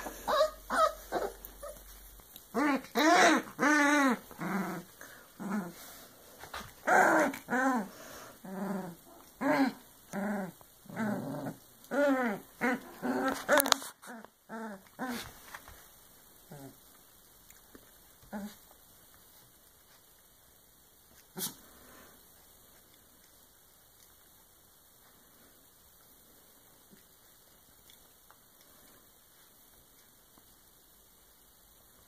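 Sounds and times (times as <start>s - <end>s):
puppies vocalizing: 0.0s - 5.9s.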